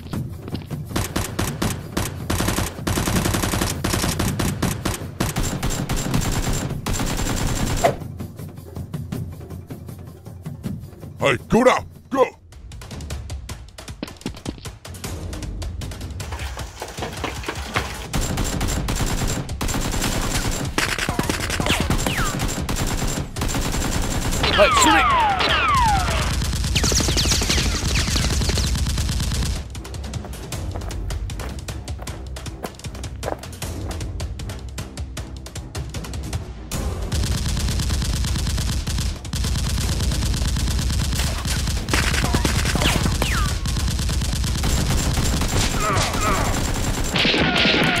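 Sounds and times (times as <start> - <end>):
rapid automatic gunfire: 0.9 - 8.0, 18.1 - 29.6, 37.0 - 48.0
automatic gunfire sound effects: 37.0 - 48.0.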